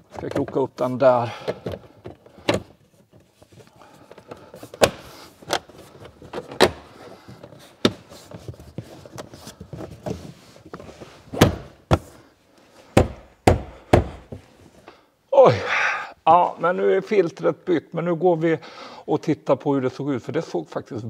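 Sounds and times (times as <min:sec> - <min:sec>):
plastic rubbing: 0:00.0 - 0:12.2.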